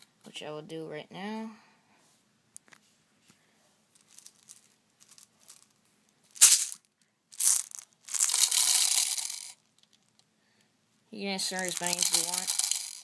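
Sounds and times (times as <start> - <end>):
bbs rattling in magazine: 4.0 - 10.2, 11.4 - 13.0.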